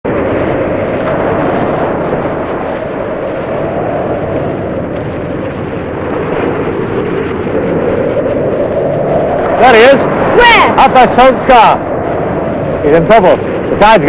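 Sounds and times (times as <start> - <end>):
waves breaking: 0.1 - 14.0.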